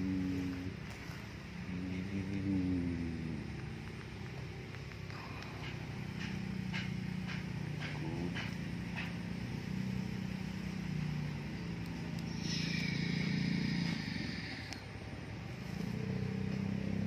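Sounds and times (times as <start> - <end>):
high motor whine: 0.0 - 17.0
toy electric motor humming: 10.2 - 14.9.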